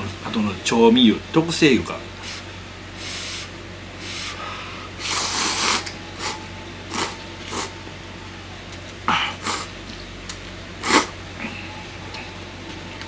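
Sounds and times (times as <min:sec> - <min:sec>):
person slurping noodles: 0:05.0 - 0:07.7, 0:09.2 - 0:09.7, 0:10.8 - 0:11.1.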